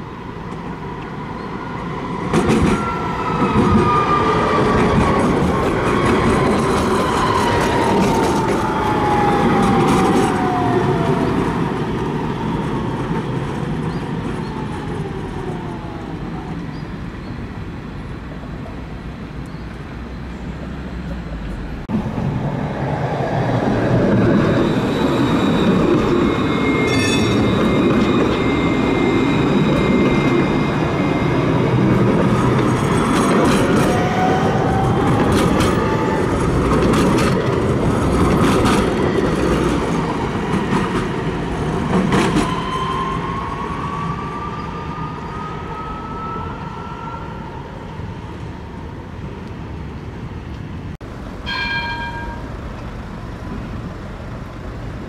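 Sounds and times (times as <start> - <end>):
tram running noise: 0.0 - 55.0
high ringing wheel squeal: 24.4 - 32.6, 42.3 - 47.5, 51.4 - 52.6.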